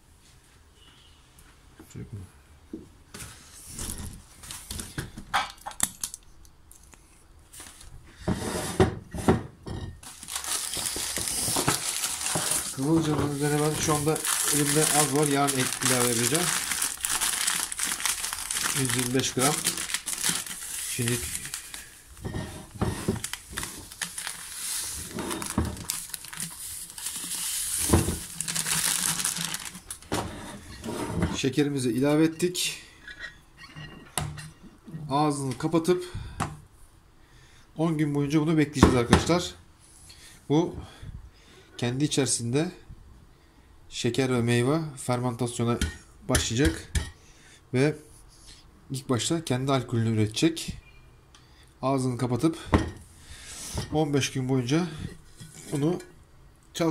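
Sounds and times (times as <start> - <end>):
hand moving among berries: 10.0 - 30.0
paper package rustling: 10.0 - 30.1
plastic bag crinkling: 10.0 - 30.1.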